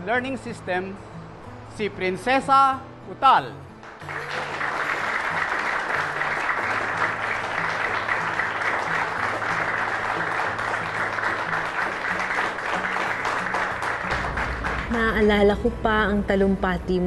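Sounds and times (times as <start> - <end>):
audience applauding: 3.8 - 15.3.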